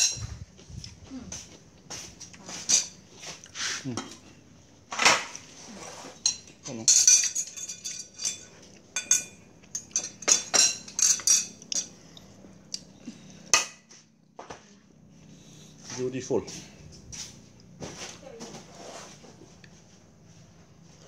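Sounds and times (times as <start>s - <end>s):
chopsticks clinking on ceramic: 6.2s - 12.0s.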